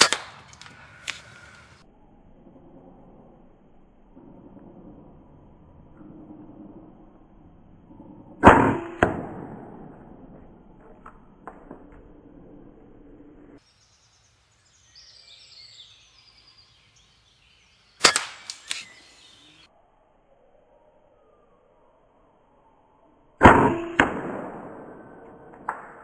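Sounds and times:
air rifle shot: 0:00.0 - 0:01.2, 0:08.4 - 0:10.2, 0:18.0 - 0:19.0, 0:23.4 - 0:26.0.

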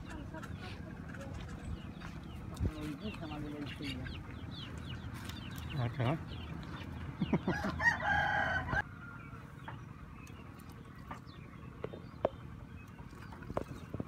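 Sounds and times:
rooster crowing: 0:07.4 - 0:09.4.

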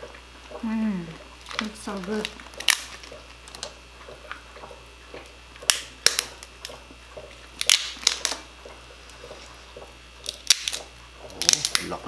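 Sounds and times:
lobster shell cracking: 0:01.2 - 0:04.4, 0:05.2 - 0:08.7, 0:10.2 - 0:12.0.

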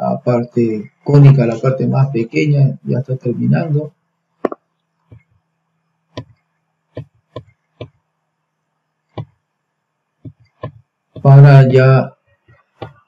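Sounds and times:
faint steady hum: 0:00.0 - 0:13.0
computer mouse clicks: 0:06.2 - 0:08.0.

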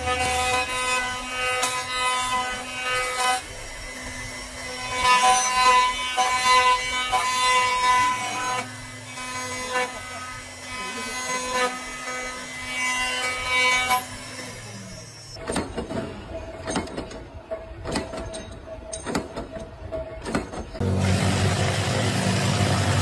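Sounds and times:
wood-turning cutter head whining: 0:00.0 - 0:15.4, 0:20.8 - 0:23.0.

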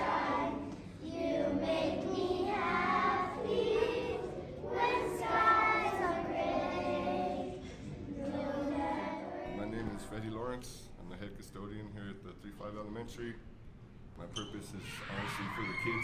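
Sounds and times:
young children singing: 0:00.0 - 0:10.5.

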